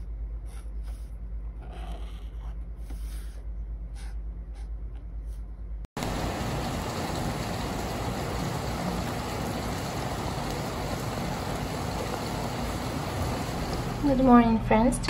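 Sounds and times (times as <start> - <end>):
steady rain hiss: 6.0 - 14.4.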